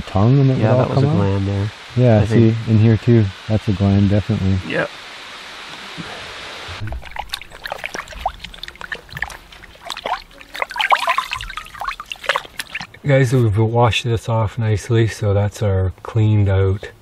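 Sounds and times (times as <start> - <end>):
steady hiss: 0.0 - 9.9
water splashing in a pot: 6.8 - 13.0
water dripping: 6.8 - 13.1.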